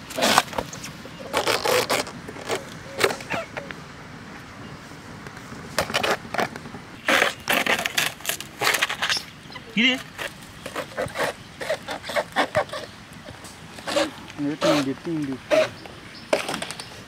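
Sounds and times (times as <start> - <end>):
moist scrapes of banana trunk: 0.0 - 3.5, 5.7 - 9.3, 10.0 - 16.6.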